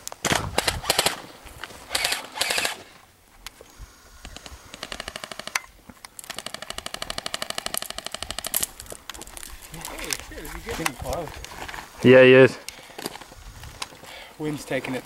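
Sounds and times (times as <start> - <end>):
airsoft guns firing rapidly: 0.2 - 1.2, 1.9 - 2.8, 4.7 - 5.6, 6.3 - 8.6.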